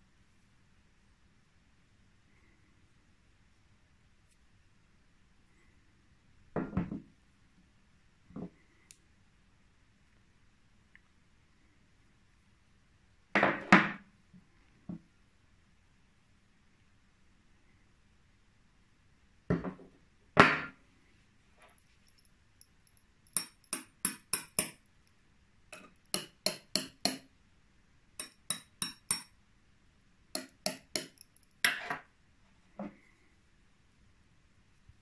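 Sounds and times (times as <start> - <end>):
metal rod tapping metal: 23.3 - 24.8, 25.8 - 27.3, 28.2 - 29.4, 30.4 - 31.9.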